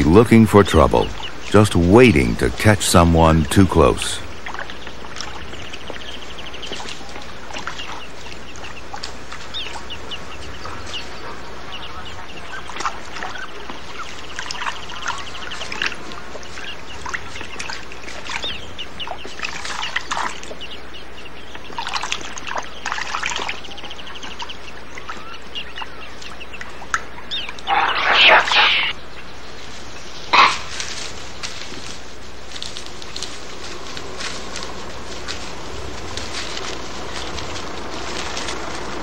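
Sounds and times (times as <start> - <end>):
birds chirping and trilling: 0.0 - 39.0
steady outdoor hiss: 0.0 - 39.0
water splashing: 12.0 - 20.6, 21.7 - 25.2.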